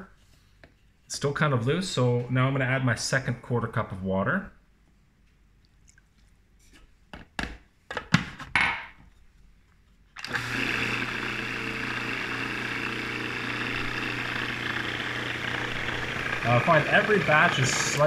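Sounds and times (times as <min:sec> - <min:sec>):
food processor motor humming: 0:10.2 - 0:18.0.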